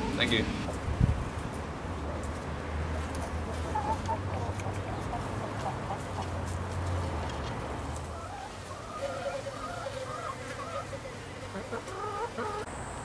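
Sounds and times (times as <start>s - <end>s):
hens clucking softly: 3.1s - 6.4s, 7.9s - 12.7s.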